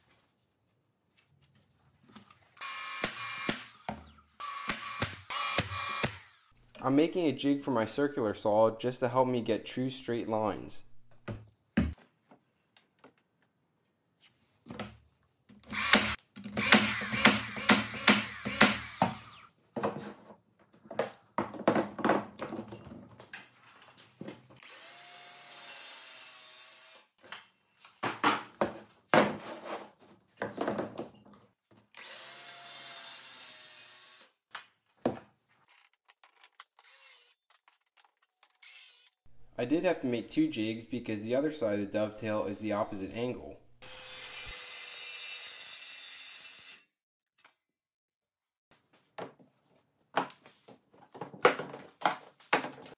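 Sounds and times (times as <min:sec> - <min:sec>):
power tool bursts: 0:02.6 - 0:06.5, 0:15.7 - 0:19.5
circular saw cutting plywood: 0:15.8 - 0:19.5, 0:43.8 - 0:46.8.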